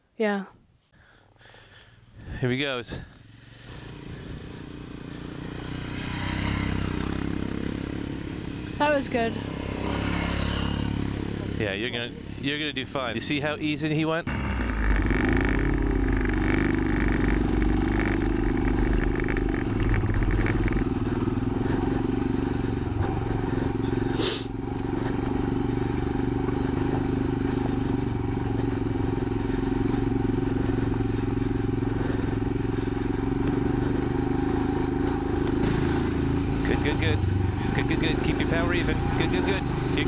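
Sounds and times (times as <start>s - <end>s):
motorcycle engine running: 1.4s - 40.0s.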